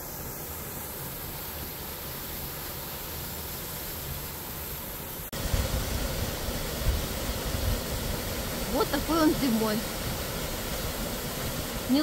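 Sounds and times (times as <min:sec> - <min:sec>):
water rushing under ice: 0:05.3 - 0:12.0.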